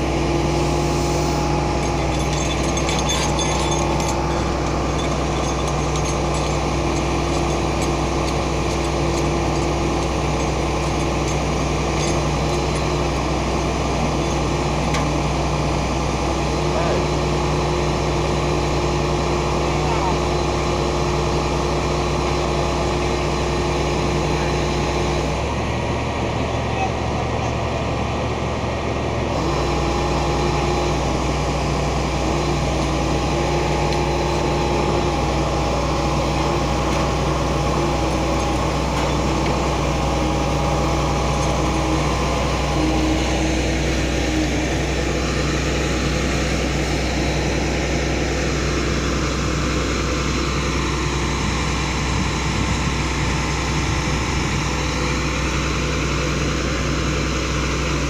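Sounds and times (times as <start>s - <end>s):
diesel engine running: 0.0s - 58.0s
winch hoisting: 0.1s - 17.0s, 29.4s - 47.6s.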